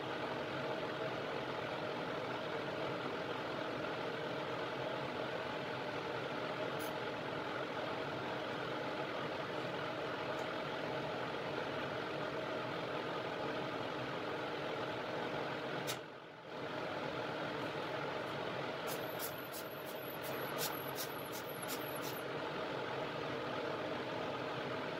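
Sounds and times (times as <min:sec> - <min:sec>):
fan whir with tones: 0:00.0 - 0:24.9.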